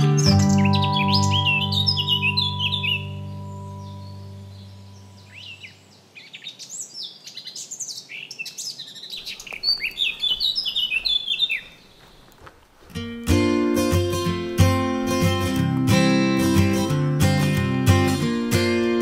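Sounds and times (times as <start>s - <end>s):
strummed acoustic guitar music: 0.0s - 5.2s, 12.8s - 19.0s
songbirds chirping: 0.0s - 17.0s
music track: 13.0s - 19.0s.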